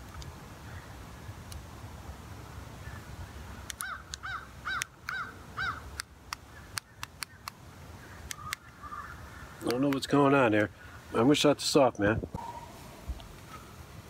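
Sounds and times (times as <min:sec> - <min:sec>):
bird calling: 0:02.8 - 0:10.0, 0:12.4 - 0:13.8
sharp clicks: 0:03.6 - 0:04.2, 0:05.9 - 0:07.6.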